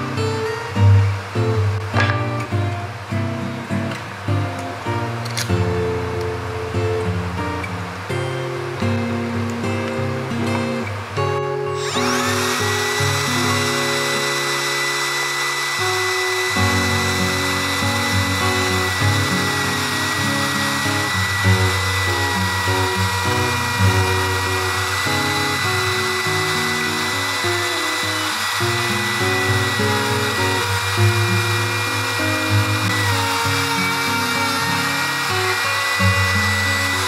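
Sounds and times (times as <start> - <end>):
circular saw motor whining: 11.8 - 37.0.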